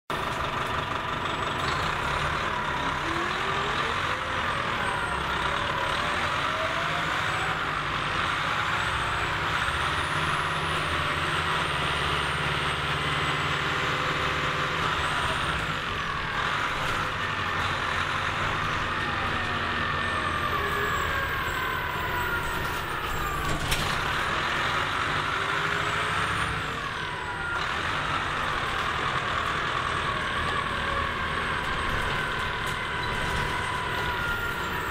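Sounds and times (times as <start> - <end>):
bus diesel engine running: 0.1 - 34.9.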